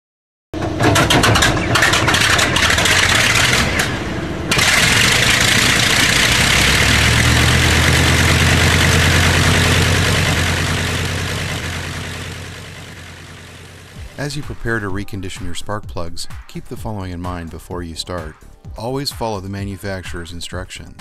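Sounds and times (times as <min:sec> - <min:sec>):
aircraft piston engine starting: 0:00.6 - 0:14.9.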